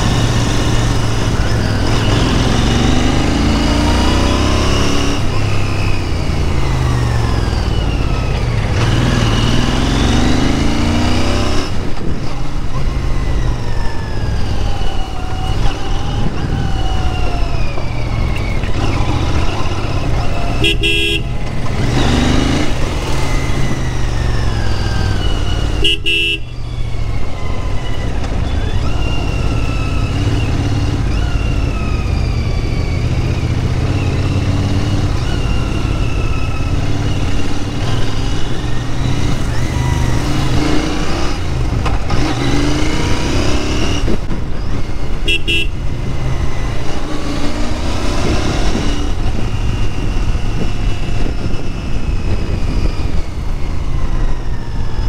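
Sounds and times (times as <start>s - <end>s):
motorcycle engine revving: 0.0s - 55.0s
vehicle horn beeps: 20.5s - 21.4s, 25.8s - 26.6s, 45.2s - 45.8s.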